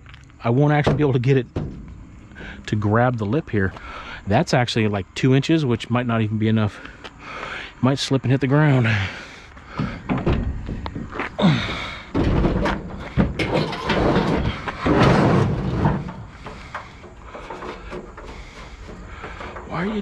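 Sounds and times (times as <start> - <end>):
heavy scrap knocks and thuds: 0.7 - 3.1, 9.7 - 20.0
scrap scraping and banging: 0.7 - 4.0, 12.1 - 20.0.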